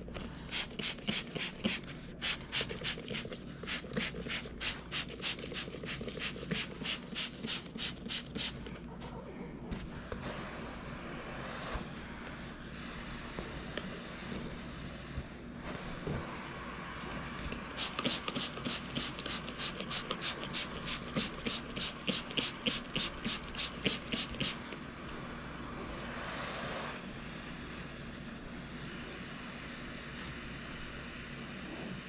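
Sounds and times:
trigger sprayer spritzes: 0.5 - 8.7, 17.5 - 24.8.

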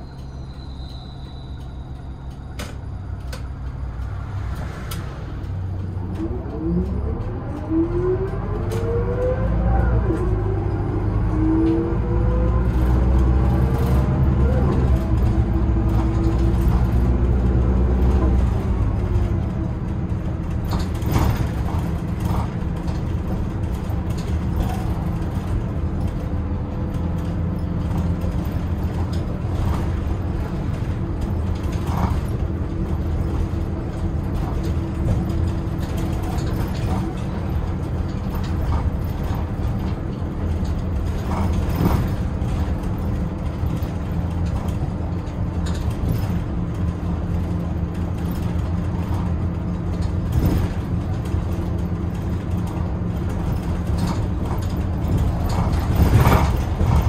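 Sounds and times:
bus engine and road drone: 0.0 - 57.0.

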